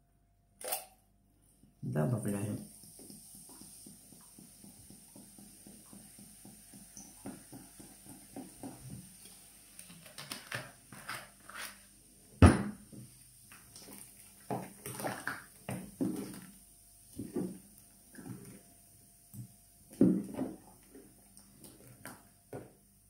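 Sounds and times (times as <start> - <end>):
wooden spoon stirring in pot: 2.7 - 9.8, 13.0 - 18.7.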